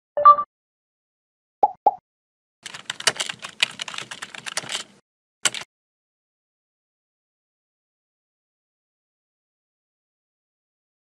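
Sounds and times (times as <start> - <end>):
keyboard key clicks: 2.7 - 5.7.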